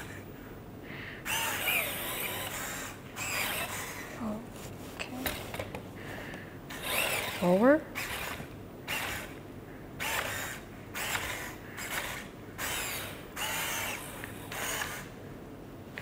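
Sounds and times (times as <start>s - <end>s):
robot servo motors whirring: 1.3s - 4.1s, 6.7s - 9.4s, 10.0s - 15.1s.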